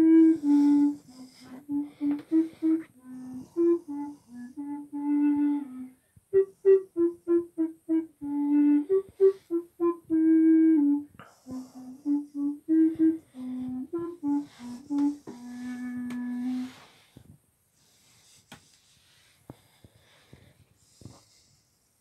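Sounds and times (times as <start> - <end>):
bass recorder playing tune: 0.0 - 16.8.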